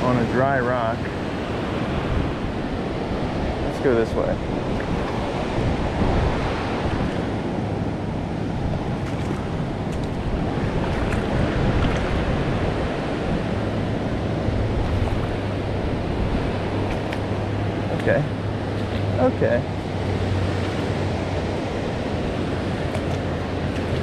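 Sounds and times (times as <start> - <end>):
river rushing over rocks: 5.4 - 24.0.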